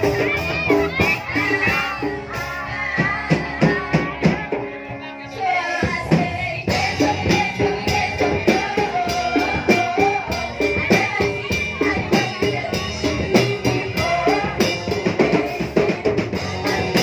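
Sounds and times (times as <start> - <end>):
person singing: 0.0 - 17.0
ska band playing: 0.0 - 17.0.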